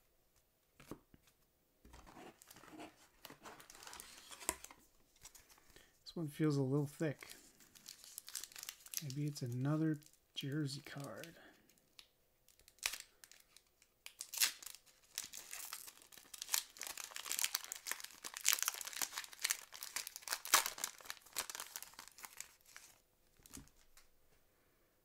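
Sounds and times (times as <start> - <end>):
card pack wrapper tearing and crinkling: 3.4 - 5.6, 7.2 - 24.0.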